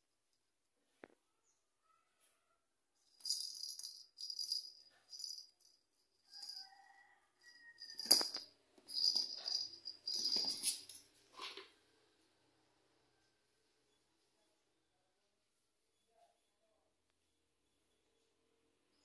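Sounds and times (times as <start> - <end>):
small bell jingling: 3.1 - 11.1.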